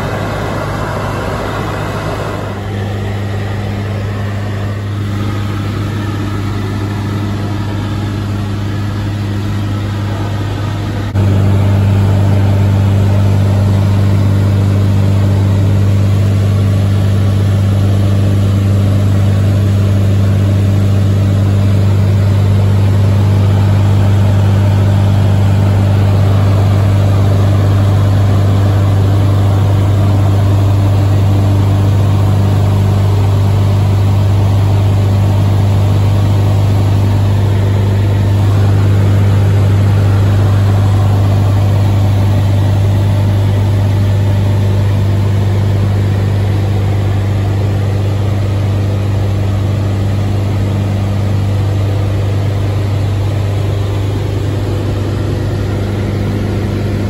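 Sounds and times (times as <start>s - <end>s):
light aircraft engine droning: 0.0s - 57.0s.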